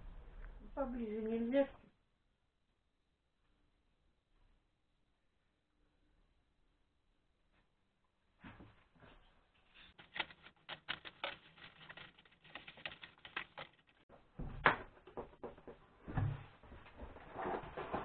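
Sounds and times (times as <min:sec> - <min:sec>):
plastic bag crinkling: 0:09.9 - 0:14.0.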